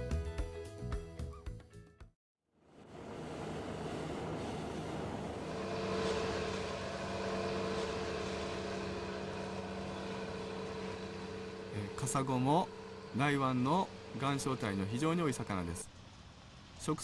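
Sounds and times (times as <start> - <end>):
boat engine droning: 2.6 - 17.0.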